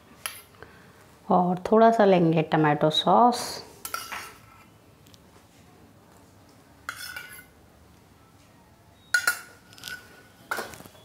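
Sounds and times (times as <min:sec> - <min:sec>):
metal spoon clinking against dishes: 0:03.8 - 0:04.7, 0:06.9 - 0:07.5, 0:09.0 - 0:10.9.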